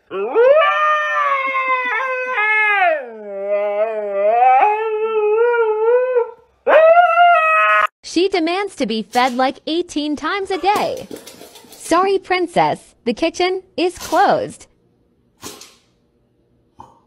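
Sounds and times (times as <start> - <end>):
husky howling: 0.0 - 7.9.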